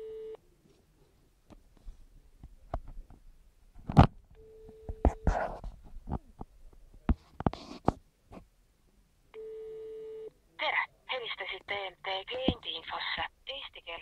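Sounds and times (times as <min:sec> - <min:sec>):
steady telephone tone: 0:00.0 - 0:00.4, 0:09.4 - 0:10.3.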